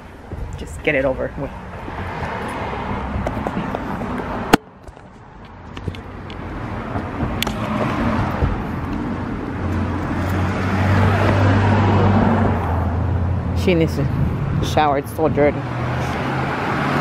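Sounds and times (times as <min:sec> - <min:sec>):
car driving past: 0:09.6 - 0:13.6.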